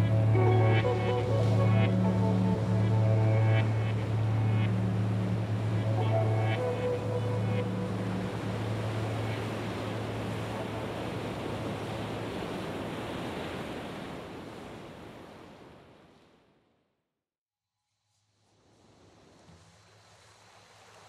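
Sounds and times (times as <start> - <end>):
ocean surf: 0.0 - 16.4.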